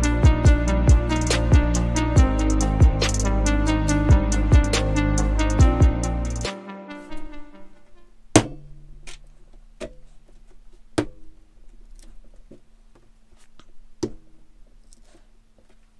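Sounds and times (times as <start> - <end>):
handling sounds: 7.0 - 15.9
faint steady hum: 7.3 - 15.9.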